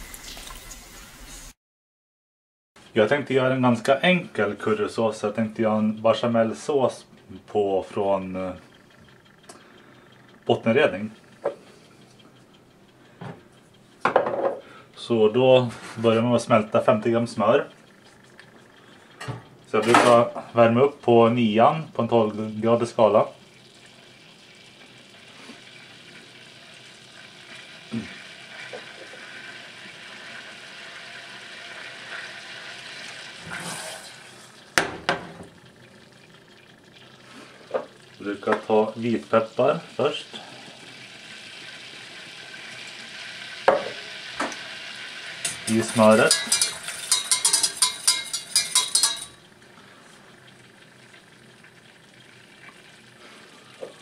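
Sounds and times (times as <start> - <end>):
butter sizzling in a pan: 23.4 - 54.0
utensil scraping in a pan: 31.8 - 34.5, 43.9 - 49.4.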